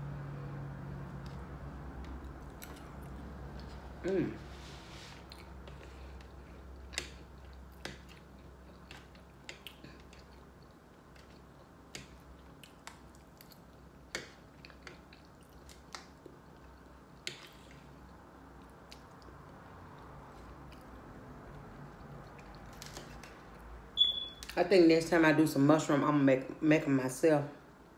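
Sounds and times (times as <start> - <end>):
chewing: 1.1 - 4.1, 5.2 - 23.6.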